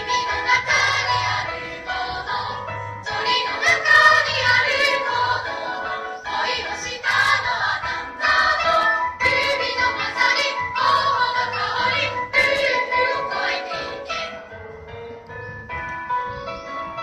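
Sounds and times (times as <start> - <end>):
girls' choir singing: 0.0 - 14.4.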